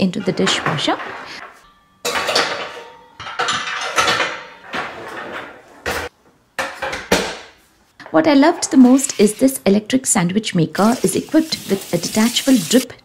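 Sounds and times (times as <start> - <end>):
metal plates clattering on rack: 2.1 - 7.4.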